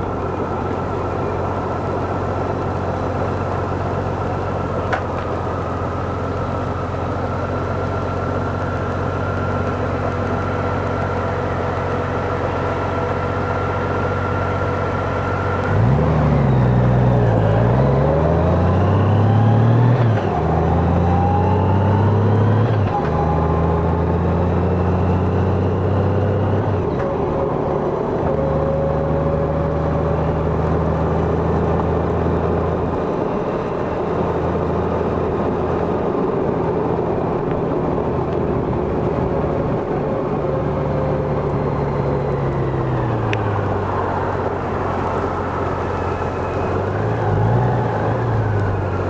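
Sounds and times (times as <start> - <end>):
motorcycle engine cruising: 0.0 - 49.0
road and wind noise: 0.0 - 49.0.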